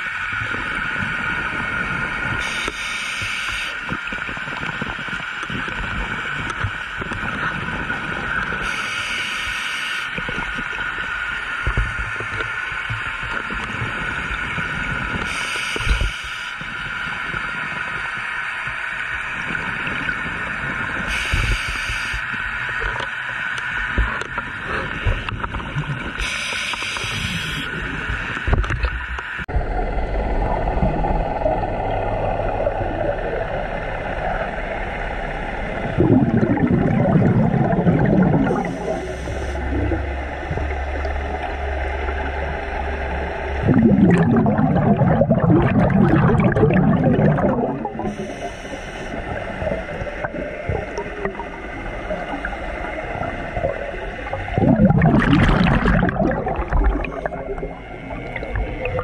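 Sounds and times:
underwater hum: 0.0s - 59.0s
regulator inhale hiss: 2.4s - 3.8s, 8.6s - 10.2s, 15.2s - 16.7s, 21.1s - 22.2s, 26.2s - 27.7s, 38.6s - 39.8s, 48.0s - 49.6s
exhaled air bubbling: 23.8s - 59.0s.

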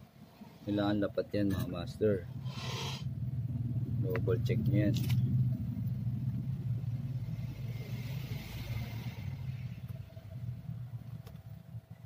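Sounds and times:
passing motor vehicle rumble: 0.1s - 12.0s.

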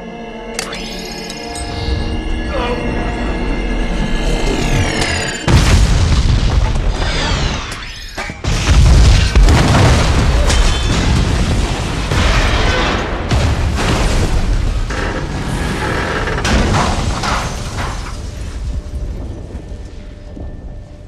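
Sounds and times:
background music: 0.0s - 6.2s
explosion blasts: 5.4s - 7.7s, 8.4s - 15.7s.

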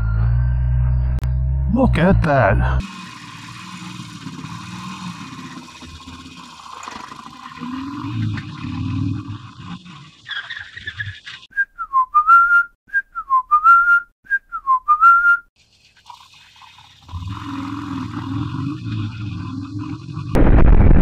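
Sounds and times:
person whistling a phrase: 11.5s - 15.5s.

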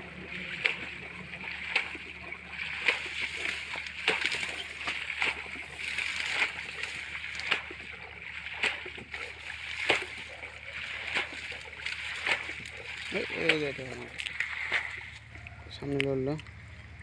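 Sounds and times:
splashing in muddy water: 0.0s - 17.0s.

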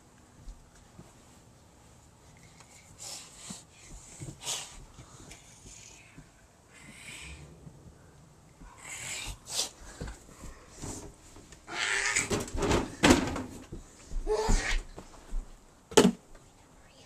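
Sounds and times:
knocks and bumps on floor: 12.2s - 16.2s
child making animal noises: 14.2s - 14.9s.

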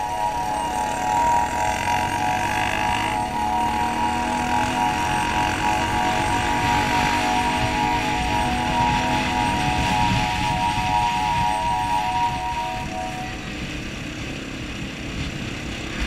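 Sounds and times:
motorcycle engine cruising: 0.0s - 16.0s
wind rushing: 2.2s - 13.6s.

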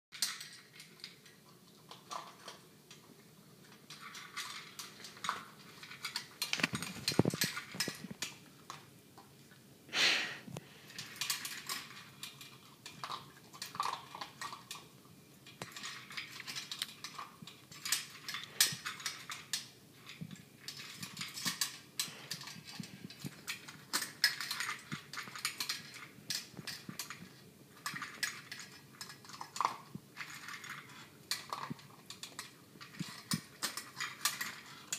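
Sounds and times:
puppy eating from metal bowl: 0.1s - 9.6s, 10.7s - 34.9s.

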